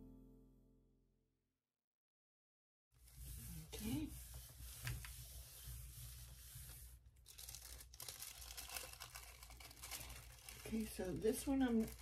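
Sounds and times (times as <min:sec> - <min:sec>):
hands rubbing paper: 0:03.0 - 0:12.0.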